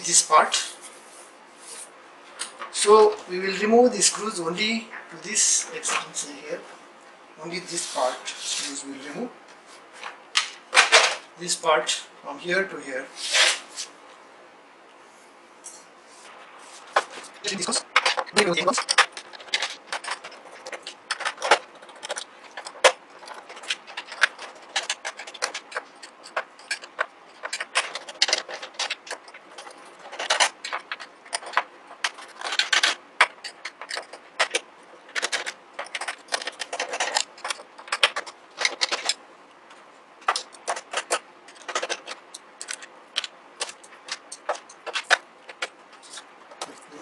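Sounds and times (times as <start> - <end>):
screws clicking and rattling on plastic: 17.4 - 39.2, 40.2 - 46.3.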